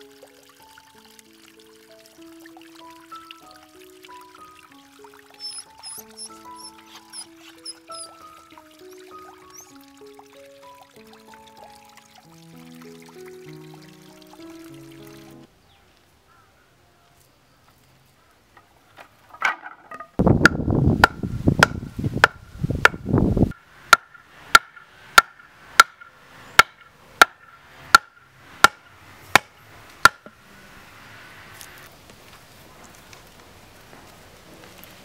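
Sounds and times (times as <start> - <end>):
machete chopping wood: 20.4 - 23.0, 23.9 - 28.8, 29.4 - 30.3.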